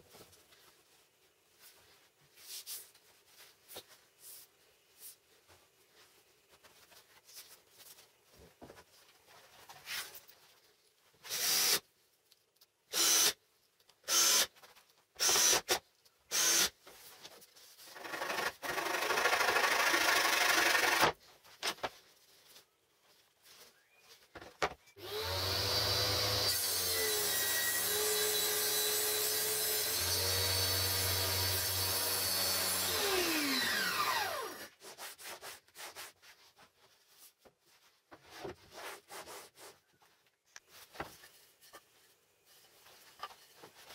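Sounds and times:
table saw cutting: 0:25.0 - 0:34.7.

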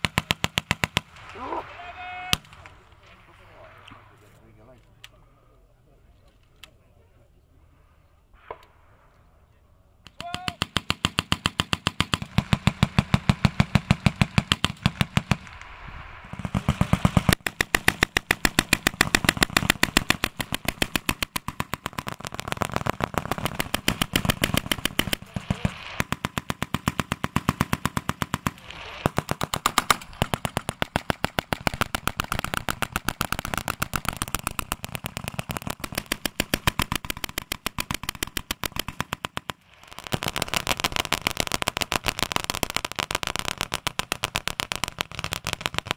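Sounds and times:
machine guns firing: 0:10.2 - 0:15.5, 0:16.2 - 0:45.9.

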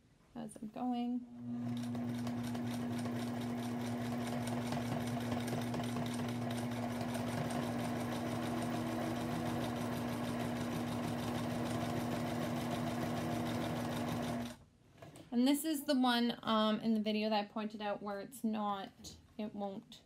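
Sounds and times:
sewing machine motor hum: 0:01.4 - 0:14.6.

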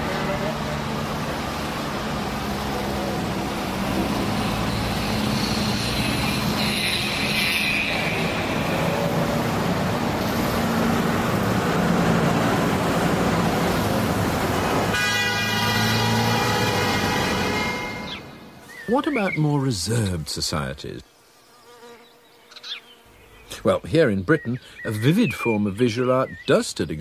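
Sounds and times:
car engines running: 0:00.0 - 0:20.4
car horns honking: 0:03.8 - 0:10.6, 0:14.8 - 0:19.2.

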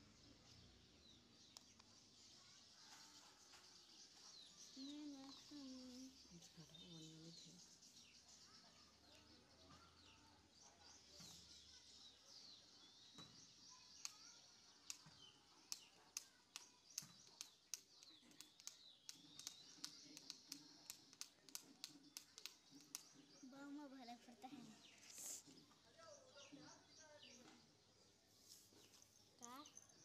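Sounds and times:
birdsong chirping: 0:00.0 - 0:30.0
fingernails clicking in hair: 0:14.0 - 0:23.2.

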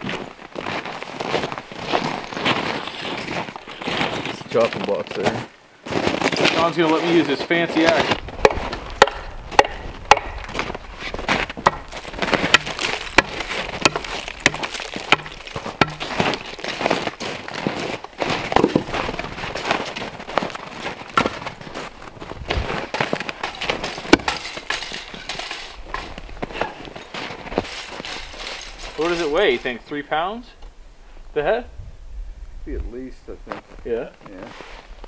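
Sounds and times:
wood pieces being handled: 0:07.9 - 0:29.7
axe splitting firewood: 0:08.4 - 0:20.0, 0:21.0 - 0:21.8, 0:22.5 - 0:29.6.

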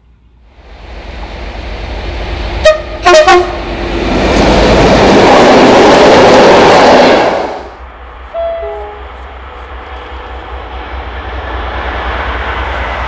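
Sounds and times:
train passing at speed: 0:00.0 - 0:13.0
horn-like tone: 0:02.6 - 0:03.6, 0:08.3 - 0:09.1
locomotive horn blasts: 0:02.6 - 0:03.6, 0:08.3 - 0:09.1.

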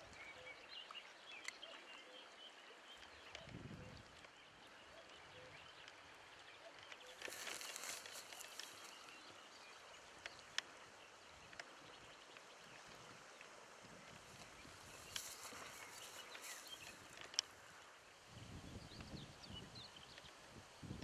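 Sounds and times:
brief rustle: 0:06.9 - 0:09.2, 0:14.4 - 0:17.7.

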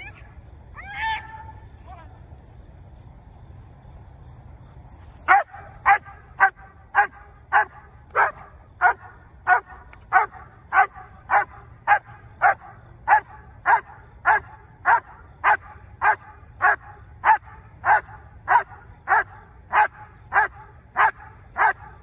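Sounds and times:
dog barking: 0:05.3 - 0:22.0.

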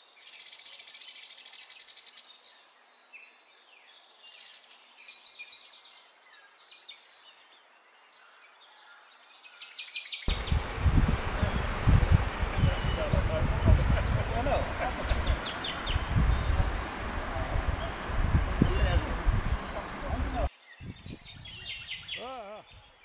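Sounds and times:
small birds chirping: 0:00.0 - 0:23.0
steady rushing noise: 0:10.3 - 0:20.5.

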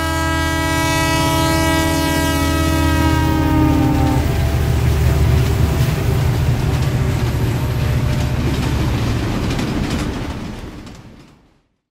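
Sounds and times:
train rumbling past: 0:00.0 - 0:11.7
train wheels clacking on rails: 0:02.6 - 0:11.7.

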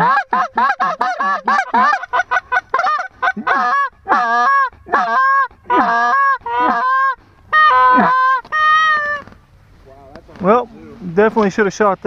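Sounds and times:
goose call clucks and honks: 0:00.0 - 0:09.4.

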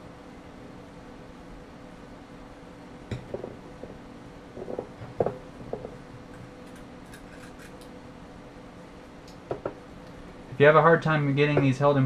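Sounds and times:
steady low hum: 0:00.0 - 0:12.0
tools knocking on wooden bench: 0:03.1 - 0:03.9, 0:04.6 - 0:06.0, 0:09.5 - 0:09.8.

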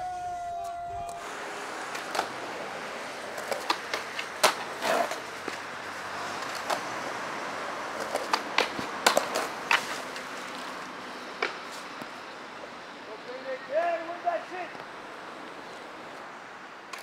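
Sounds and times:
skateboard wheels rolling: 0:00.0 - 0:12.3, 0:14.8 - 0:17.0
skateboard clacking on pavement: 0:01.9 - 0:07.1, 0:07.8 - 0:10.8, 0:11.4 - 0:12.1.

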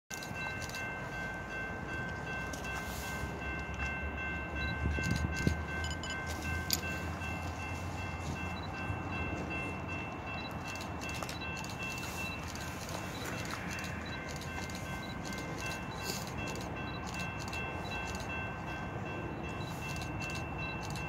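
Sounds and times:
freight train rumbling: 0:00.1 - 0:21.0.

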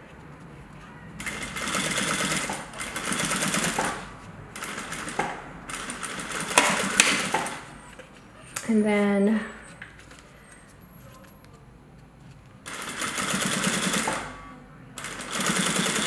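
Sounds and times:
sewing machine stitching: 0:01.2 - 0:04.0, 0:04.6 - 0:07.7, 0:12.7 - 0:14.4, 0:15.0 - 0:16.0.

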